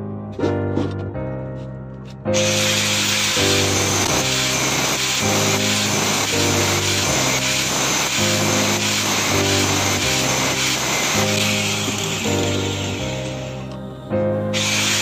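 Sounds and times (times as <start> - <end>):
piano background music: 0.0 - 15.0
angle grinder cutting steel: 2.4 - 13.7, 14.6 - 15.0.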